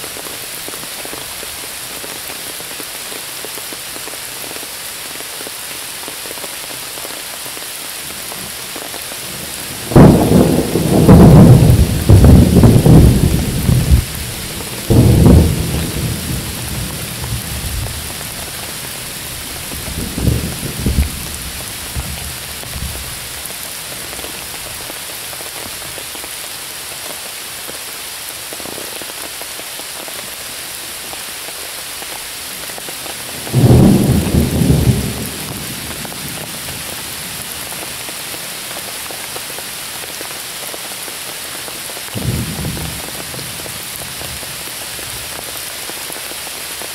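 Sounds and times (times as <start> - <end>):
rain falling on leaves: 0.0 - 46.9
thunder: 9.7 - 18.7, 19.4 - 23.1, 33.4 - 36.8, 42.2 - 44.5.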